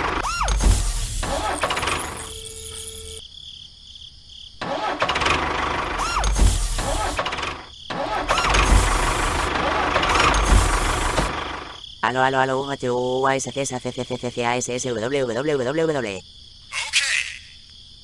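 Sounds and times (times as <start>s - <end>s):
tractor engine running: 0.0s - 3.2s, 4.6s - 11.8s.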